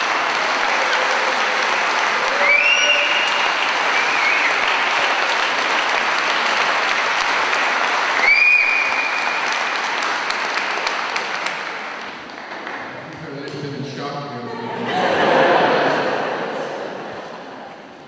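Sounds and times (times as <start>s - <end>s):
crowd applauding: 0.0s - 13.8s
rising whistles: 2.3s - 4.6s.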